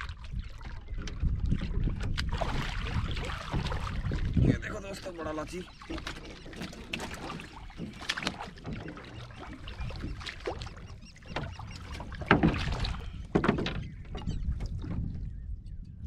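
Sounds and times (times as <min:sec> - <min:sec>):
knocks on wooden boat planks: 0:11.3 - 0:14.2.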